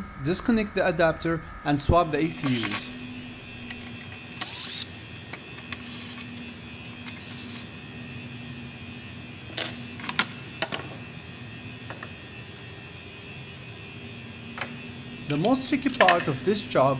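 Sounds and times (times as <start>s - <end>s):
cordless drill spinning: 2.2s - 7.7s.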